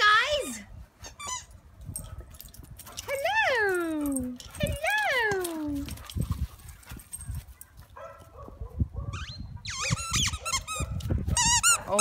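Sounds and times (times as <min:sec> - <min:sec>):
squeaky dog toy squeaking: 0:01.0 - 0:01.6, 0:09.2 - 0:12.0.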